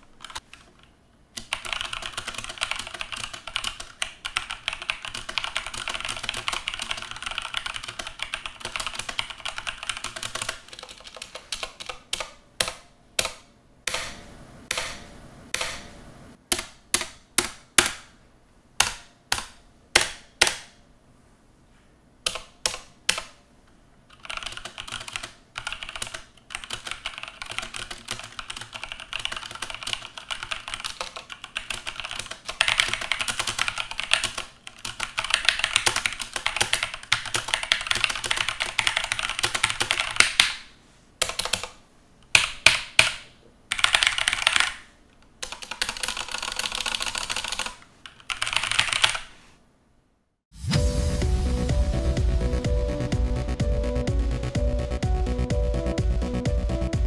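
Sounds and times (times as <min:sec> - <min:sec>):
mechanical keyboard typing: 0:00.2 - 0:00.6, 0:01.4 - 0:14.0, 0:24.1 - 0:40.6, 0:41.2 - 0:41.8, 0:42.4 - 0:49.3.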